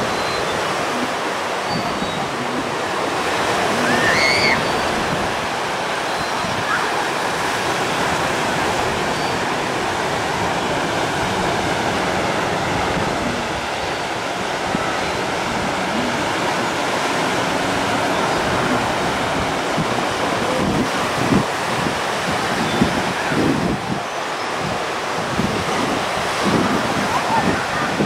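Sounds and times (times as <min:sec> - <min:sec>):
surf breaking on beach: 0:00.0 - 0:28.0
wind thumping on microphone: 0:17.4 - 0:28.0.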